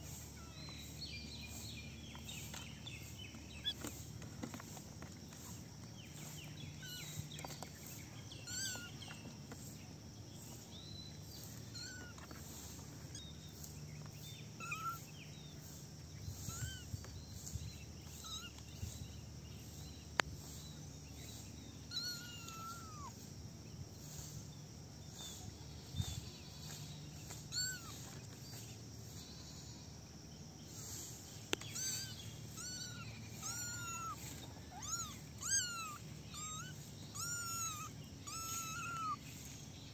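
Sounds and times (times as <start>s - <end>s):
low background hum: 0.0s - 39.9s
kittens meowing: 0.1s - 1.0s, 6.7s - 7.6s, 8.4s - 9.2s, 11.4s - 12.4s, 14.5s - 15.2s, 16.3s - 17.0s, 18.0s - 18.6s, 21.8s - 23.3s, 26.0s - 28.1s, 31.6s - 39.6s.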